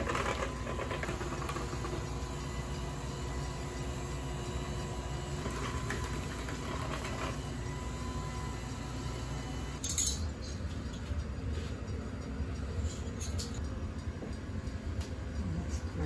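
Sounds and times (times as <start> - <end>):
electric hand mixer running: 0.0 - 9.8.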